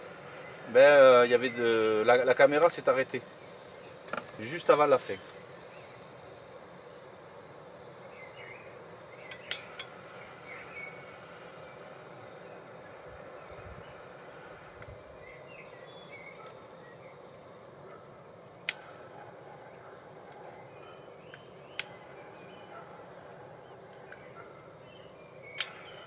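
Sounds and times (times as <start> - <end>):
faint chirps: 0.0 - 26.0
kindling cracking: 9.1 - 10.6, 18.5 - 19.1, 21.3 - 22.2, 25.4 - 26.0.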